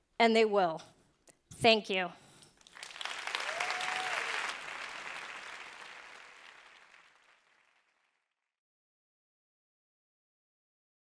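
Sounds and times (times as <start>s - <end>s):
audience applauding: 2.6s - 8.4s.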